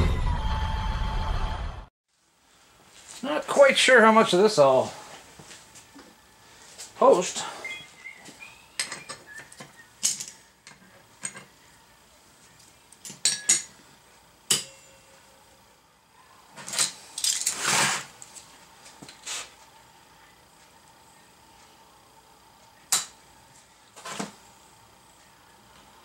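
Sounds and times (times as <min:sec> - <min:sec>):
steel parts clinking: 0:08.8 - 0:11.5, 0:12.9 - 0:13.8, 0:16.6 - 0:17.7
steel scraping on steel table: 0:17.4 - 0:18.1.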